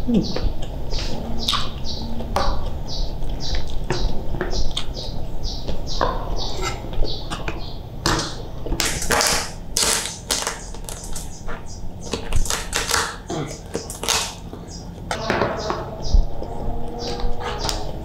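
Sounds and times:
wet chewing: 0.3s - 5.9s, 8.3s - 15.1s.

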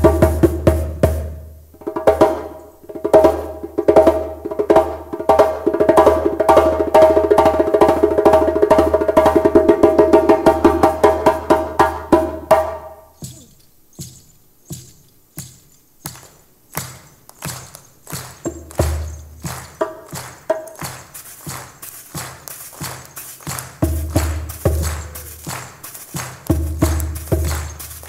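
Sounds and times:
djembe hand drumming: 0.0s - 14.9s, 16.8s - 28.0s
sharp hand claps: 15.4s - 28.0s.

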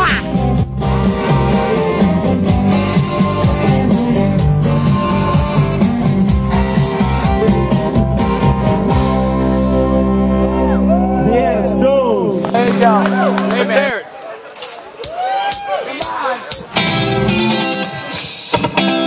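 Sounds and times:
drums: 0.0s - 10.4s, 14.4s - 19.0s
electric guitar: 0.0s - 13.9s, 16.7s - 19.0s.

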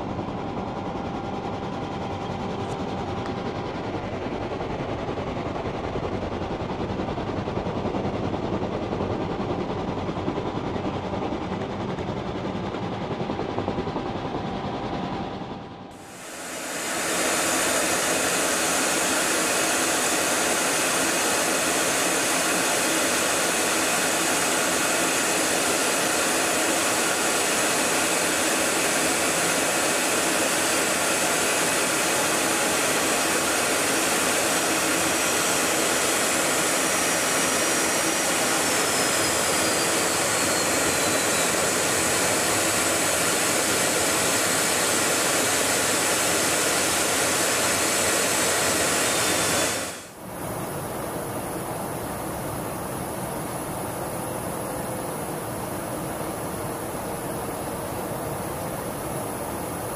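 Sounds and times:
aircraft cabin roar: 0.0s - 51.6s
faint high whistle: 38.7s - 41.9s.

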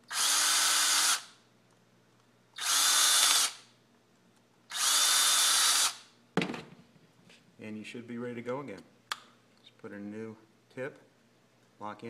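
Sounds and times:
cordless drill driving screws: 0.1s - 1.3s, 2.6s - 3.6s, 4.7s - 6.0s.

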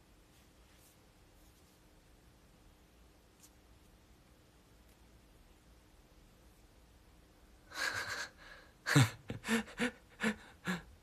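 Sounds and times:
man laughing: 7.7s - 11.0s.

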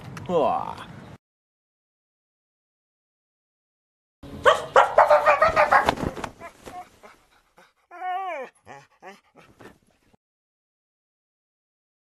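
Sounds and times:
dog yelp: 4.4s - 7.2s
dog whining and whimpering: 6.4s - 9.8s.

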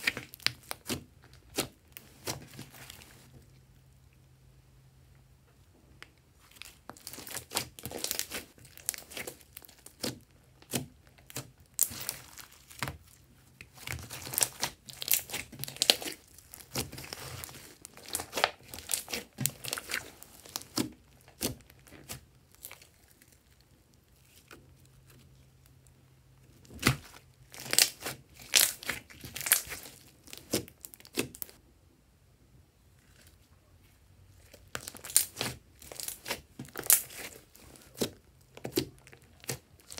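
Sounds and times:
slime sticky crackles and pops: 13.6s - 22.9s, 26.7s - 31.6s, 34.6s - 39.9s.

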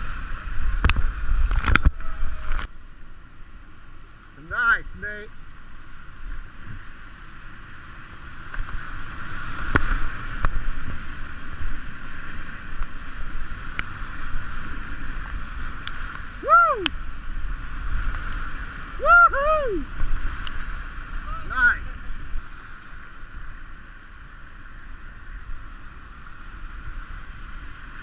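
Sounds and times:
whitewater rapids rushing: 7.5s - 25.6s.

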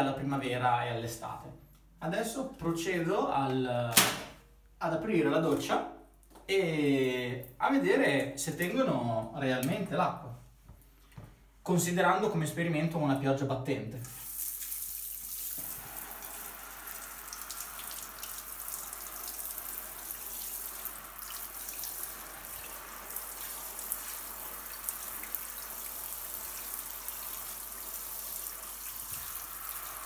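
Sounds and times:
shower water spraying and splashing: 14.1s - 30.0s.

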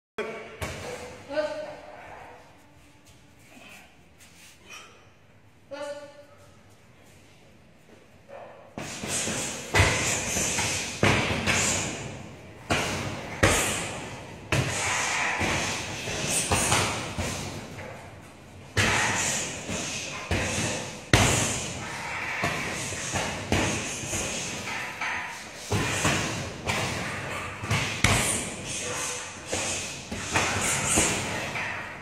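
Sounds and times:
punches thudding on punching bag: 8.8s - 17.7s, 18.7s - 24.8s, 25.6s - 28.9s, 29.5s - 31.8s.

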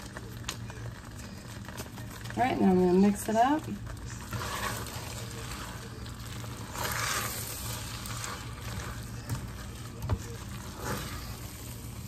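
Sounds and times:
spoon stirring sauce in a pot: 0.0s - 12.0s.

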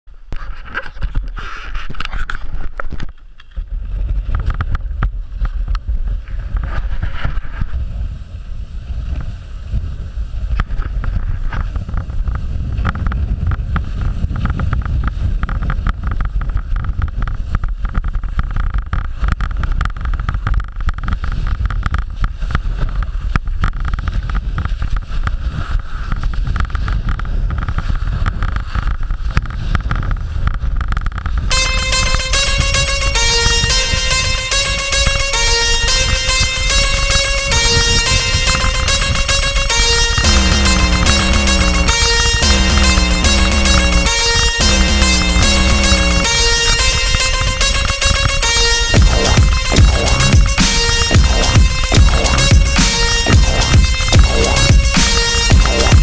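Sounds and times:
skis scraping on snow: 3.5s - 31.5s
wind buffeting microphone: 3.6s - 31.5s.

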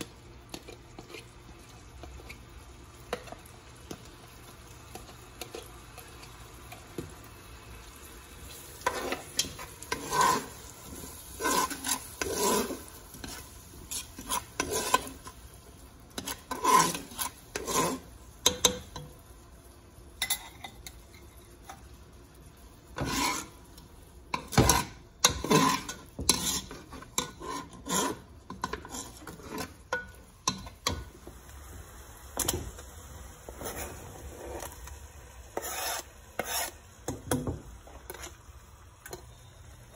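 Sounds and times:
faint sizzling: 0.0s - 39.9s
spoon scraping steel pot: 8.8s - 15.3s, 16.2s - 19.0s, 23.0s - 23.6s, 24.3s - 31.0s, 35.5s - 36.8s, 37.9s - 38.4s.

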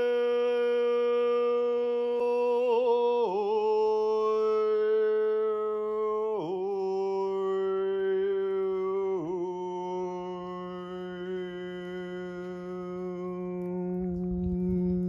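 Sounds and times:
overtone singing: 0.0s - 15.0s.

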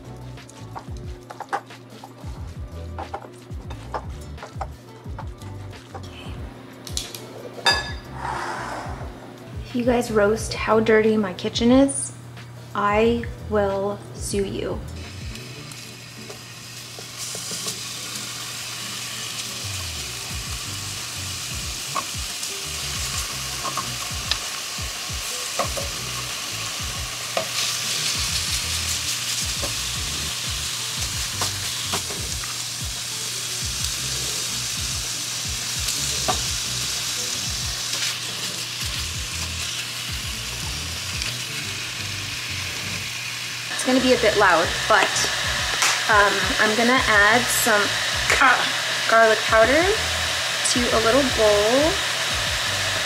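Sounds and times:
chicken sizzling in frying pan: 15.0s - 53.0s.

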